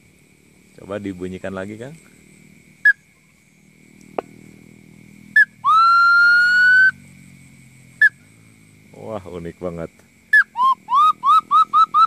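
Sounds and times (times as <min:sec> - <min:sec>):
bird call chirps: 0:05.4 - 0:07.0, 0:10.3 - 0:12.0
whistled note: 0:10.3 - 0:12.0.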